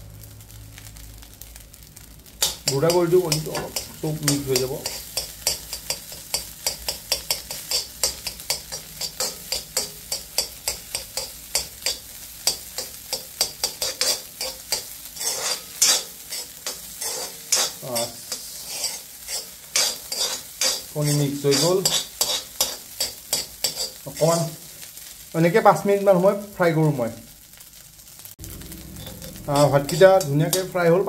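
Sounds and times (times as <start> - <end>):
rice sizzling in oil: 0.0 - 31.0
metal spoon scraping iron pan: 2.4 - 24.6, 29.0 - 31.0.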